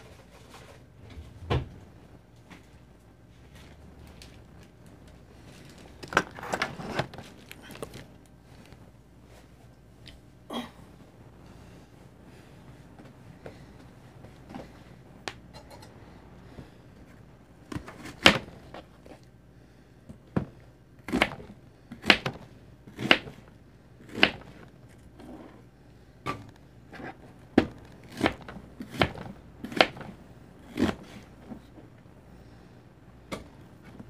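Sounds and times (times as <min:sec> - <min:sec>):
knife slicing onion: 0:21.0 - 0:23.4, 0:24.0 - 0:24.6, 0:26.9 - 0:31.3.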